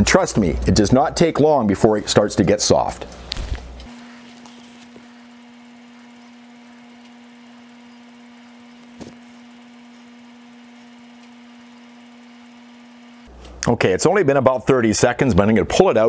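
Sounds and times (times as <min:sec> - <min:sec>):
toaster oven humming: 0:00.0 - 0:15.8.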